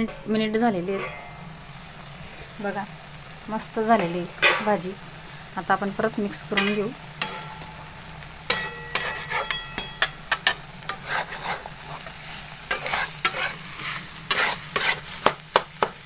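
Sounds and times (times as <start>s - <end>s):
metal spatula scraping pan: 0.0s - 1.8s, 6.6s - 7.8s, 8.5s - 16.0s
food frying in pan: 0.0s - 16.0s.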